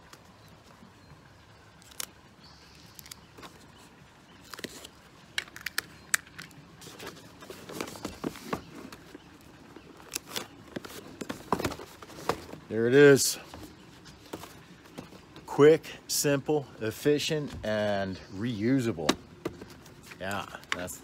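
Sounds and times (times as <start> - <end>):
cardboard box handling rustles: 6.8 - 15.4.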